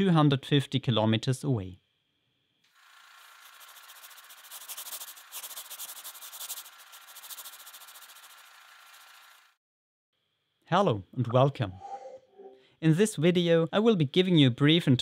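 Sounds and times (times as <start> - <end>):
stylus scratching across paper: 2.8 - 9.4.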